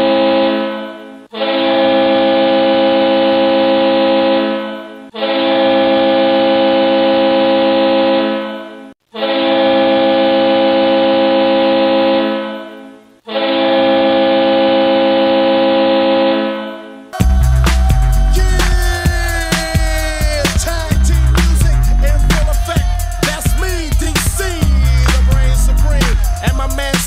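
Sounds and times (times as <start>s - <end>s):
hockey goal horn blasts: 0.0s - 27.0s.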